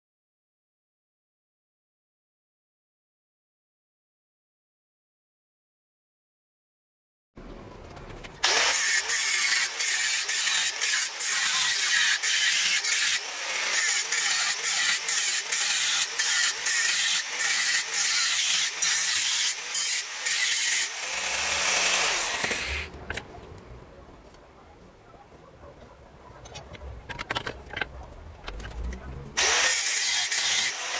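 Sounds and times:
angle grinder grinding steel: 0:08.4 - 0:22.9, 0:29.4 - 0:30.9.

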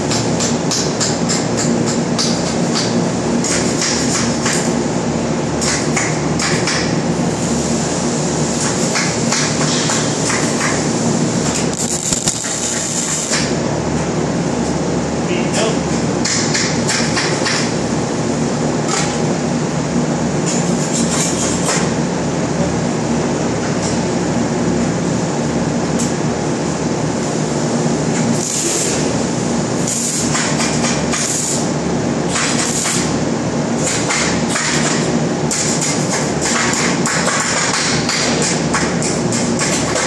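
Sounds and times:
arc welding hissing: 0:07.4 - 0:13.6, 0:28.2 - 0:34.7.

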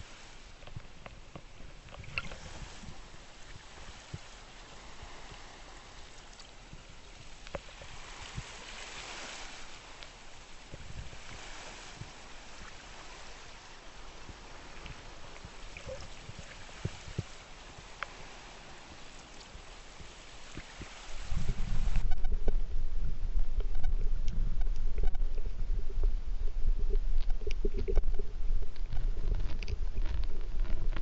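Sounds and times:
seawater lapping over sand: 0:00.0 - 0:22.3.

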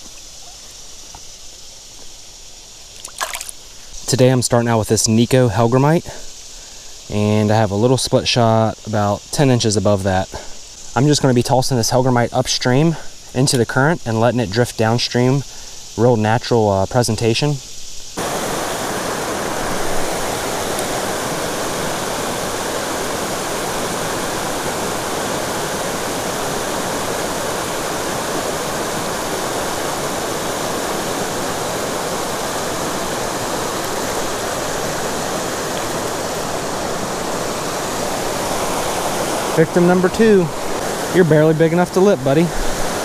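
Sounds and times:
water rushing over weir: 0:03.0 - 0:03.6, 0:18.2 - 0:43.0.

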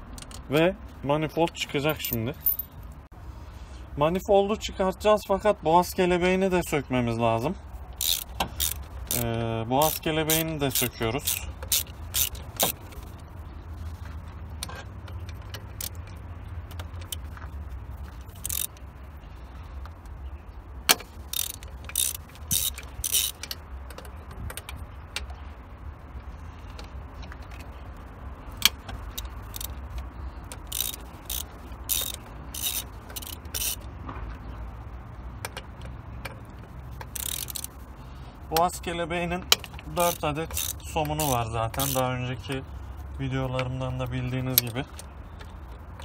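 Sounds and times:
sharp metallic clicks: 0:07.8 - 0:13.3, 0:20.8 - 0:25.4, 0:26.0 - 0:46.0
socket ratchet clicking: 0:07.9 - 0:13.1, 0:14.6 - 0:17.3, 0:18.1 - 0:18.9, 0:20.8 - 0:25.2, 0:28.5 - 0:34.0, 0:35.4 - 0:37.9, 0:39.3 - 0:42.7.

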